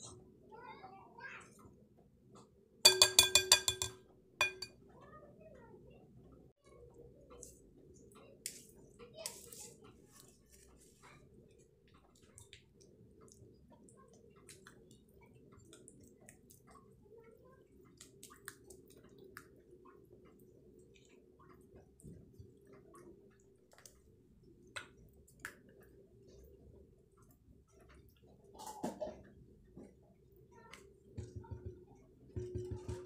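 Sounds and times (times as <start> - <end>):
low steady hum: 2.7 - 4.7
batter stirred with spoon: 2.9 - 4.8, 7.0 - 33.0.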